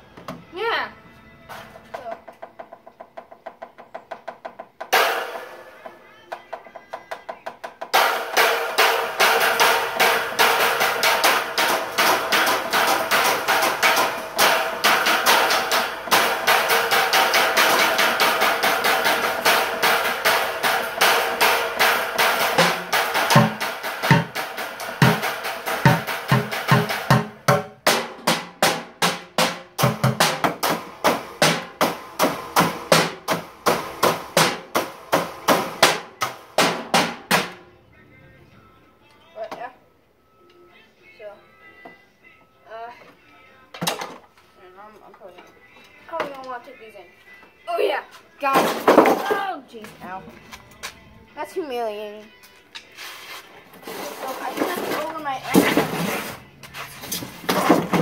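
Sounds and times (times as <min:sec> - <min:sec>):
recorded song playing: 0:00.0 - 0:02.1, 0:04.9 - 0:58.0
drumsticks beating drums: 0:01.9 - 0:37.7.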